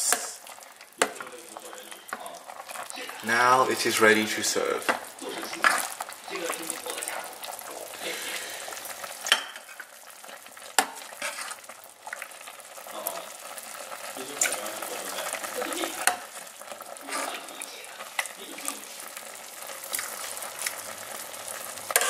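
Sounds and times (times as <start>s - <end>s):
metal ladle scraping a pot: 9.2s - 11.7s.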